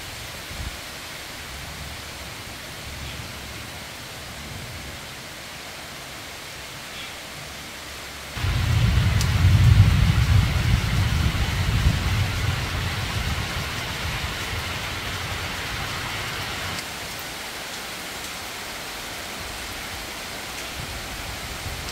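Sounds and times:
rain falling on foliage: 0:00.0 - 0:21.9
deep rumble: 0:08.4 - 0:16.8.

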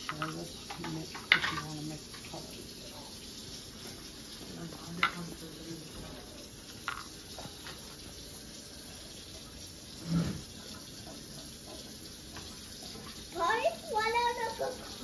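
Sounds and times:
pots and brushes tapping on stone: 0:00.0 - 0:02.4, 0:04.7 - 0:05.4, 0:06.8 - 0:07.9.

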